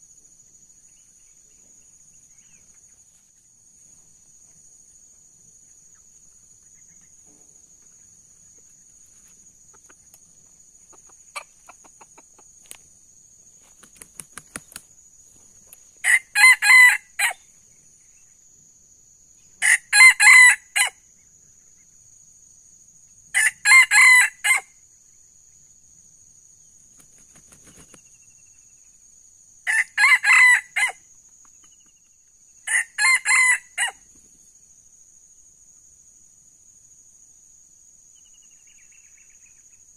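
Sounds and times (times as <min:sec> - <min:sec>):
rooster crowing: 0:16.0 - 0:17.4, 0:19.6 - 0:21.0, 0:23.3 - 0:24.7, 0:29.6 - 0:31.0, 0:32.7 - 0:34.0.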